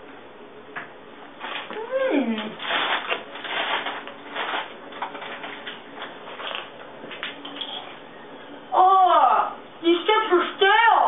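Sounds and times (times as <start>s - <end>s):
rustling and crinkling: 1.3s - 8.0s.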